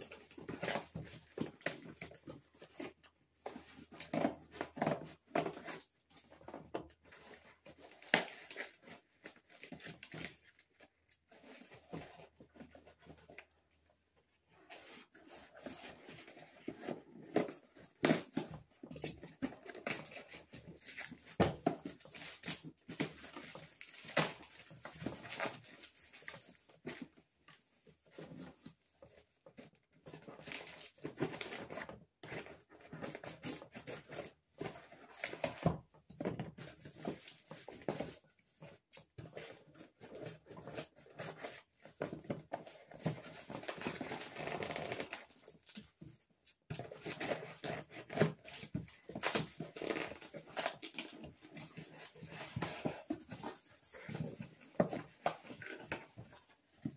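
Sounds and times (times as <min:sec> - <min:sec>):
cardboard scraping and crackling: 0:14.5 - 0:56.9
tape tearing: 0:43.1 - 0:45.5, 0:46.8 - 0:54.4.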